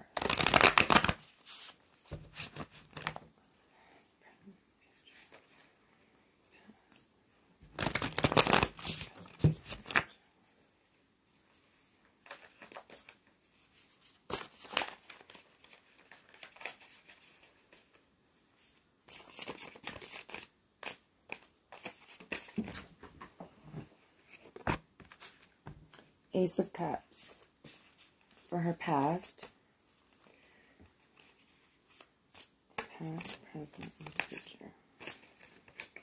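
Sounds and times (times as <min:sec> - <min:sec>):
cards being shuffled: 0:00.2 - 0:03.2, 0:07.7 - 0:10.1, 0:12.2 - 0:18.0, 0:19.1 - 0:22.9, 0:31.0 - 0:36.0.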